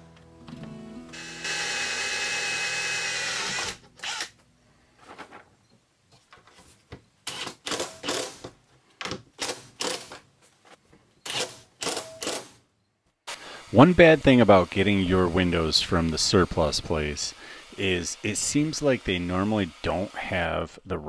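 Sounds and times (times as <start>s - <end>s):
power drill whining: 1.2s - 4.4s, 13.3s - 20.6s.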